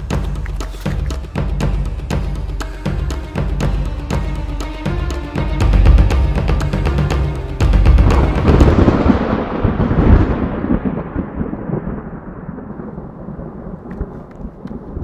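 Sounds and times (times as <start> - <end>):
boom rolling into deep rumble: 7.9 - 14.2.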